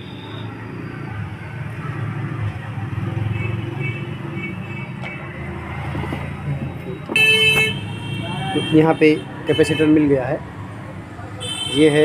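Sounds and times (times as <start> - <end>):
vehicle engine rumbling: 5.0 - 7.6.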